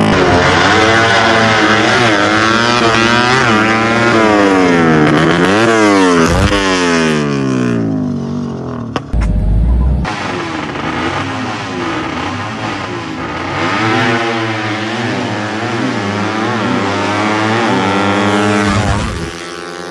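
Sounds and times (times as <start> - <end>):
motorcycle engine revving: 0.0 - 19.9
low rumble: 9.1 - 10.2.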